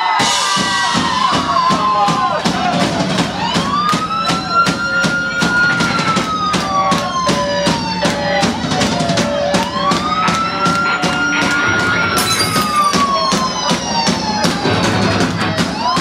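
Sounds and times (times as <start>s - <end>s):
live band playing: 0.0s - 16.0s
siren-like sweeping tone: 3.4s - 16.0s.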